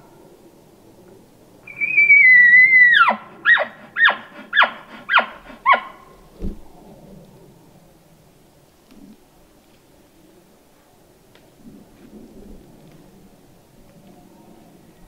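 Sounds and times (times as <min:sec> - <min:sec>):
elk bugling: 0:01.7 - 0:06.2.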